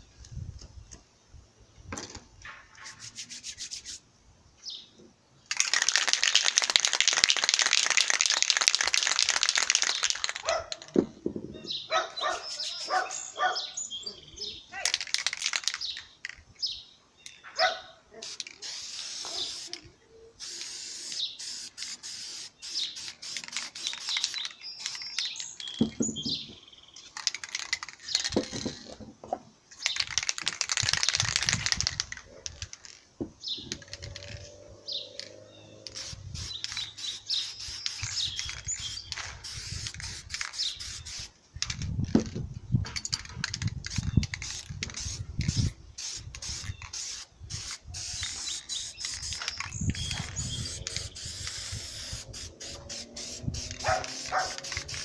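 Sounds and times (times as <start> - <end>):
spray paint can hissing: 2.7 - 4.1, 5.5 - 10.9, 12.4 - 13.3, 14.9 - 16.0, 18.2 - 26.4, 27.2 - 28.9, 29.8 - 33.0, 35.8 - 41.9, 43.2 - 55.0
birds chirping: 9.8 - 30.2, 32.1 - 41.3, 43.9 - 55.0.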